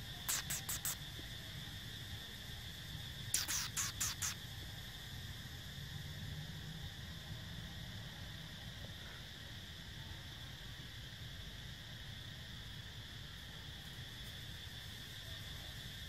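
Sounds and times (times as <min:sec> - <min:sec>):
insects droning: 0:00.0 - 0:16.0
sharp scratchy noises: 0:00.3 - 0:01.0, 0:03.3 - 0:04.4.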